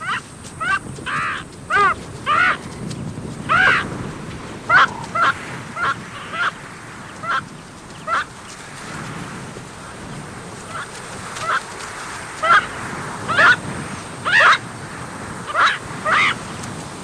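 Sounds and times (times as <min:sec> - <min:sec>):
honk-like animal calls: 0:03.5 - 0:03.9, 0:04.7 - 0:06.6, 0:13.3 - 0:13.6, 0:14.3 - 0:14.6, 0:15.5 - 0:16.4.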